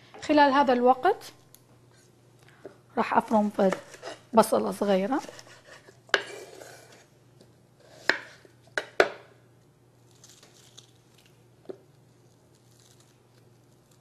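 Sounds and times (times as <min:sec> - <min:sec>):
knife chopping on wooden board: 0:08.0 - 0:09.2
onion skin rustling: 0:10.0 - 0:14.0.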